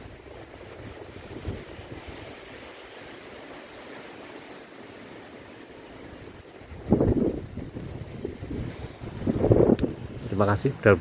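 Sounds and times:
wind buffeting microphone: 0.0s - 3.4s, 6.1s - 11.0s
wind rustling leaves: 0.0s - 11.0s.

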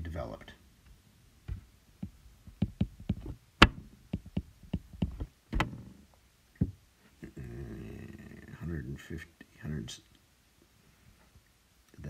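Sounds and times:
stylus tapping on glass screen: 2.0s - 5.7s.

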